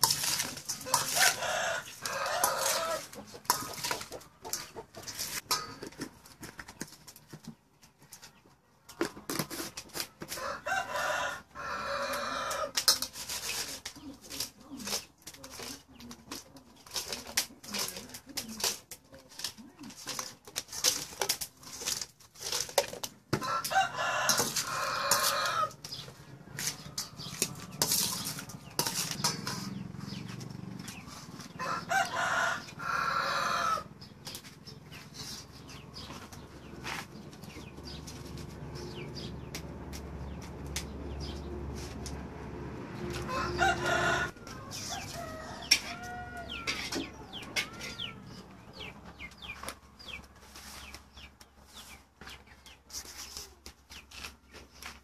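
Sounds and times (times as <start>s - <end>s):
metal spoon scraping steel bowl: 0.0s - 6.6s, 9.3s - 32.8s, 43.1s - 48.8s
rooster crowing: 0.9s - 3.1s, 10.4s - 12.8s, 23.4s - 25.8s, 31.6s - 33.9s, 43.2s - 48.2s.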